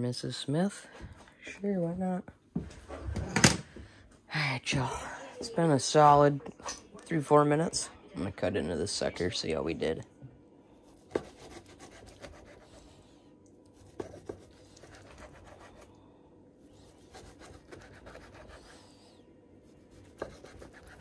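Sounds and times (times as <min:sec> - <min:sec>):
knife sawing through steak: 0:10.9 - 0:12.8, 0:13.7 - 0:15.9, 0:16.7 - 0:18.8, 0:19.6 - 0:21.0.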